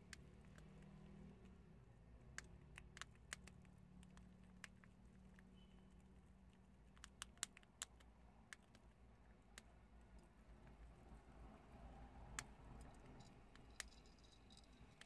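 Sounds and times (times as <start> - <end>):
prairie dogs crunching chickpeas: 0.0 - 10.5.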